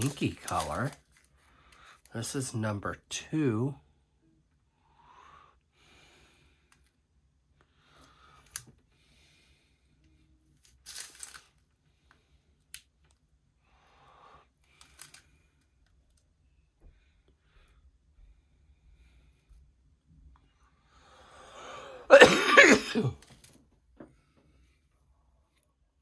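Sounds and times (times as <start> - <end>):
plastic bags crinkling: 0.0 - 1.3, 10.7 - 11.5.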